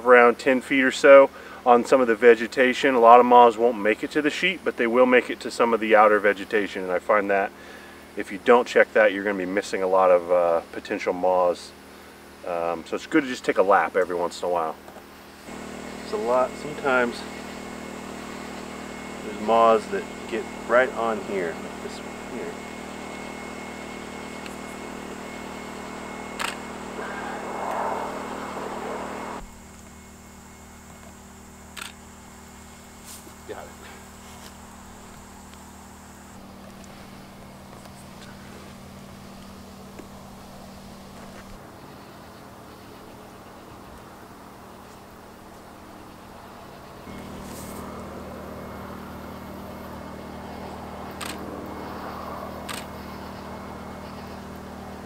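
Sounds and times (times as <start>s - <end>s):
portable generator humming: 0.0s - 55.0s
camera shutter clicking: 26.4s - 26.6s, 31.8s - 32.0s, 51.2s - 51.4s, 52.7s - 52.9s
short sharp clicks: 52.7s - 52.9s.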